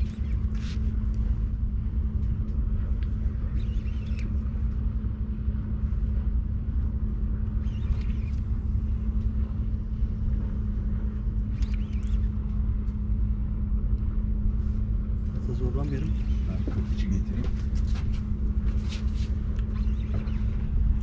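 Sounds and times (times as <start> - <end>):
boat engine rumbling: 0.0 - 21.0.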